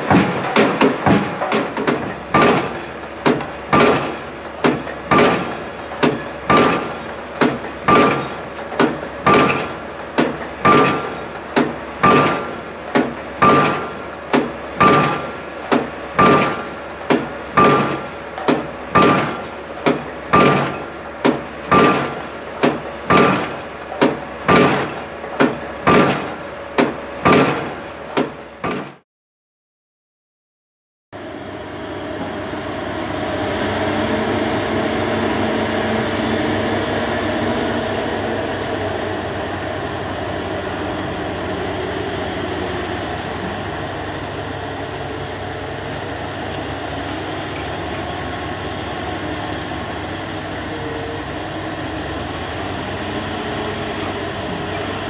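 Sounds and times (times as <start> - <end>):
pile hammer blows ringing: 7.9 - 8.3, 17.6 - 18.0
engine humming low: 31.2 - 55.0.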